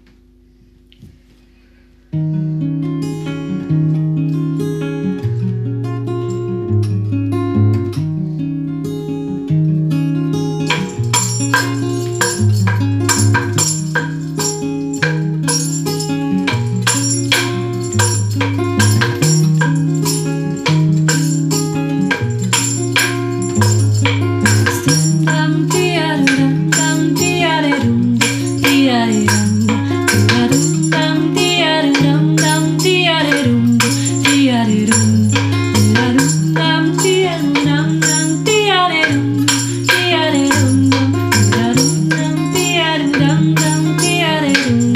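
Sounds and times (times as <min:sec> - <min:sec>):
acoustic guitar: 0:00.0 - 0:44.9
person singing: 0:24.4 - 0:44.9.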